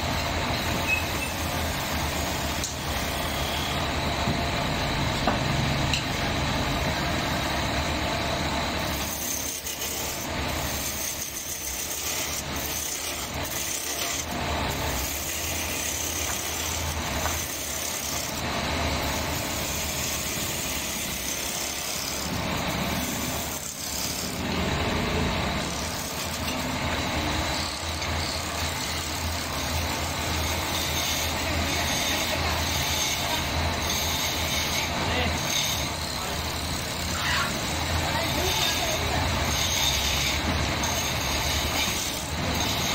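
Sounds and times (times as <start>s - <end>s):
wood lathe humming: 0.0s - 42.9s
chisel scraping wood: 8.9s - 18.5s, 19.2s - 24.6s.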